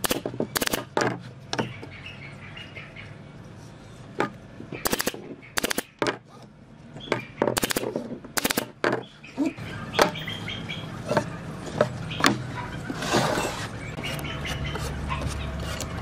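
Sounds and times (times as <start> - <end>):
nail gun firing: 0.0 - 0.9, 4.8 - 5.9, 7.6 - 8.8.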